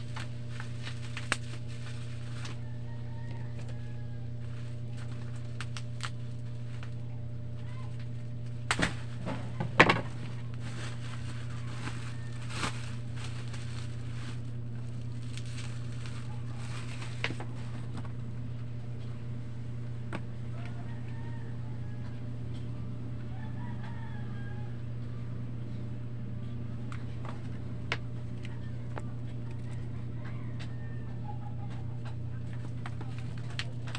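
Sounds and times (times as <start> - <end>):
bubble wrap crinkling: 0.0 - 7.0, 10.0 - 18.2, 32.4 - 33.9
low hum: 0.0 - 33.9.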